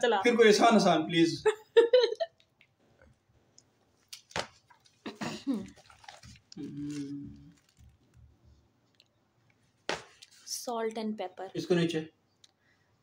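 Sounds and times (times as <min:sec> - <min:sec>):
person humming: 0:06.6 - 0:07.6
person whispering: 0:06.6 - 0:07.6.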